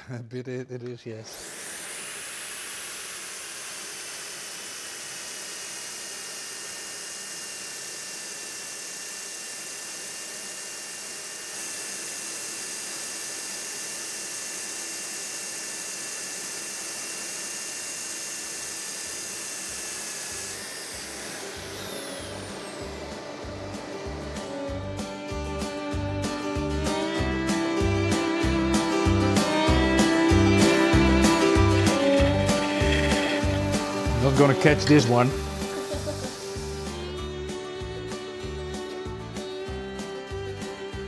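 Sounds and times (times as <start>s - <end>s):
power sanding whine and hiss: 1.2s - 41.0s.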